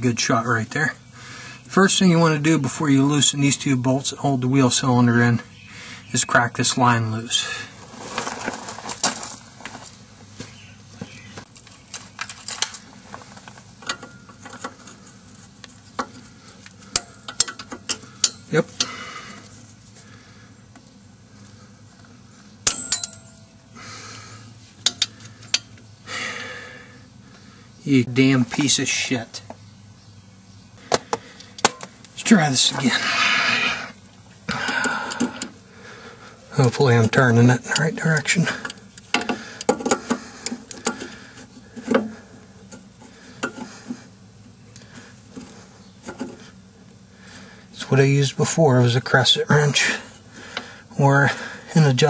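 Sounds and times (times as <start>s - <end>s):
wrench clinking on metal: 22.6s - 23.5s, 24.8s - 25.7s.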